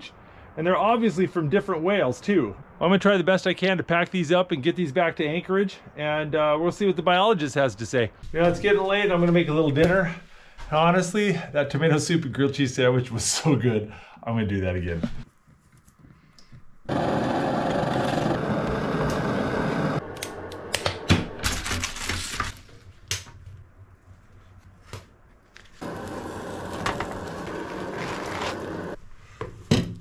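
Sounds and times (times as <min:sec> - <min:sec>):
camp stove burner rushing: 0:16.9 - 0:22.3, 0:25.8 - 0:29.0.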